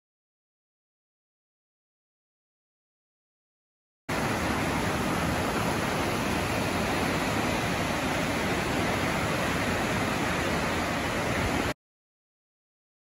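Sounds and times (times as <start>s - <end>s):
river rushing in flood: 4.1s - 11.8s.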